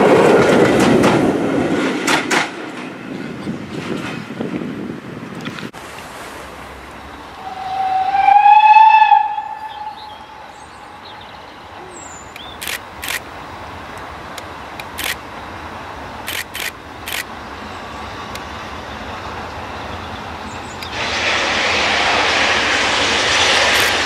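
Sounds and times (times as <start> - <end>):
steam locomotive whistle: 7.4 - 10.5
steam exhaust hisses: 20.8 - 24.0.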